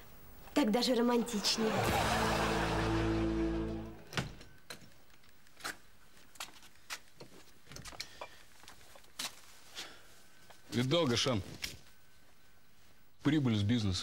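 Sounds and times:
held music chord: 1.7s - 4.1s.

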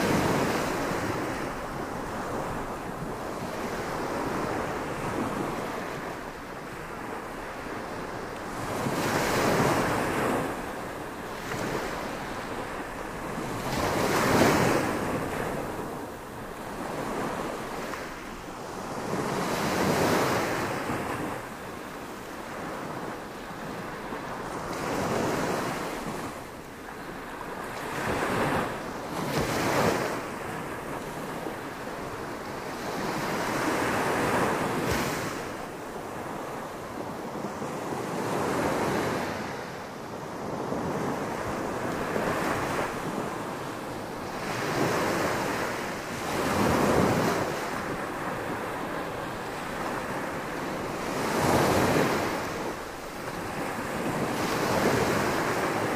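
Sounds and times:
small waves breaking on beach: 0.0s - 55.9s.

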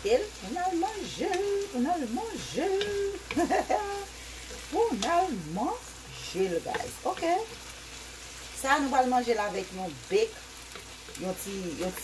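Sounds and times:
vegetables sizzling in a wok: 0.0s - 12.0s
wooden spoon stirring: 0.5s - 9.5s.

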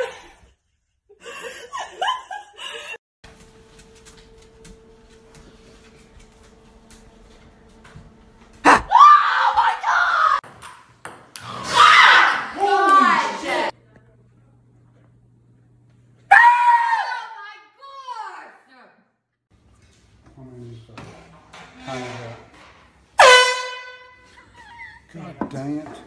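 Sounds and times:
laughter: 0.0s - 3.0s, 24.3s - 25.2s
person screaming: 8.6s - 10.4s.

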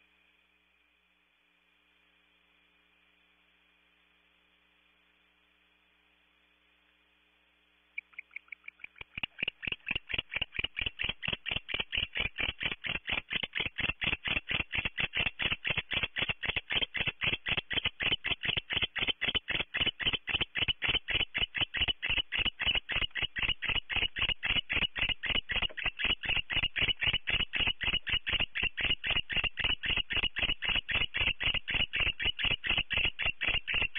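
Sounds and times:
barn owl calling: 8.0s - 12.5s.

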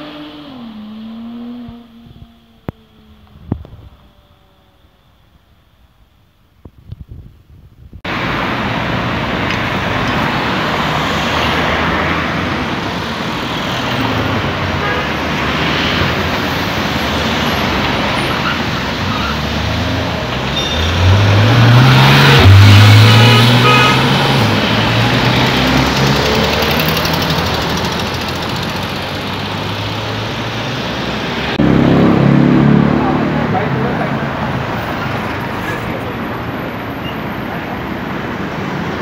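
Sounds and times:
sports car accelerating: 0.0s - 4.8s, 19.1s - 35.2s
road traffic passing: 0.0s - 6.6s, 8.0s - 39.0s.

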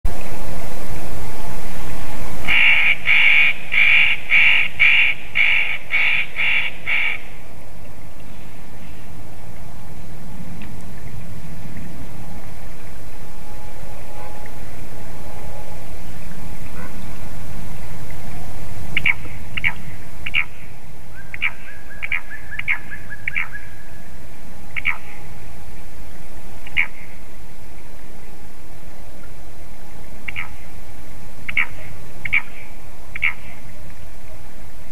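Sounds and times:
low rumble: 0.0s - 34.9s
bird harsh rasping calls: 2.5s - 7.4s, 19.0s - 23.9s, 24.8s - 25.3s, 26.7s - 27.2s, 30.3s - 30.6s, 31.5s - 33.6s.

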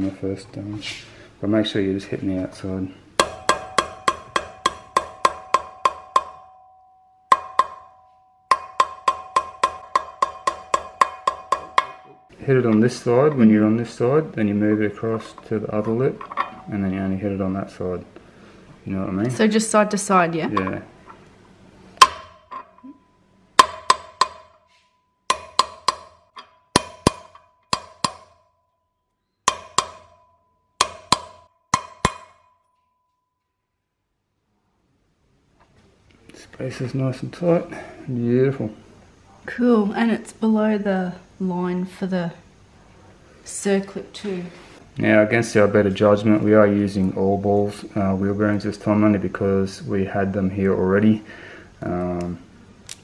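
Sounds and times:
hammer tapping metal bearing: 3.2s - 6.7s, 7.3s - 13.6s, 22.0s - 22.8s, 23.6s - 28.6s, 29.4s - 32.7s.

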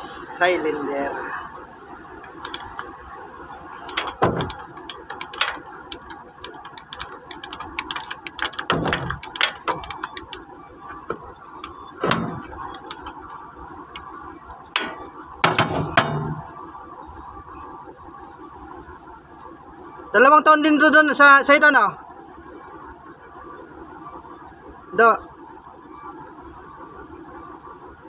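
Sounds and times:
metal knocks: 3.8s - 13.4s, 14.8s - 16.5s.

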